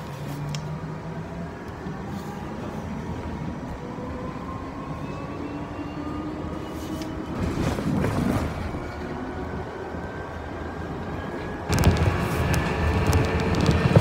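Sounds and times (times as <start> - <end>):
bus running rumble: 6.4 - 14.0.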